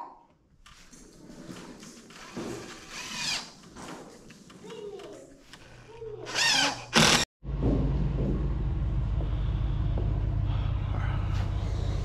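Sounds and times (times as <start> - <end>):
power drill whirring: 2.1 - 3.6, 5.4 - 7.3.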